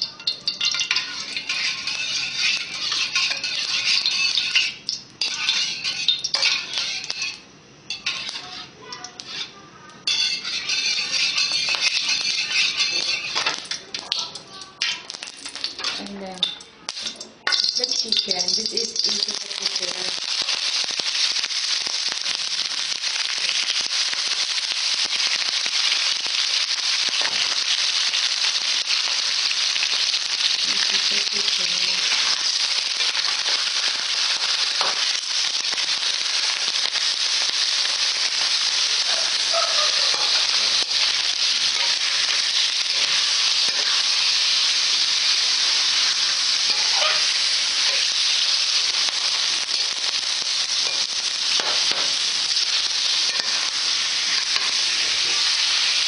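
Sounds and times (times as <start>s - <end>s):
chicken sizzling in oil: 0.0s - 56.0s
metal spatula clicking on pan: 10.1s - 20.0s.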